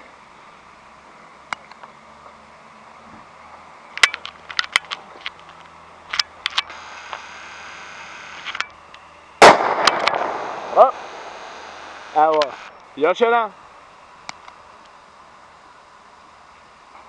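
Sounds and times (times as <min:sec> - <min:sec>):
sharp clicks and crackles: 0:04.0 - 0:12.9
fuse burning with a hiss: 0:05.3 - 0:17.0.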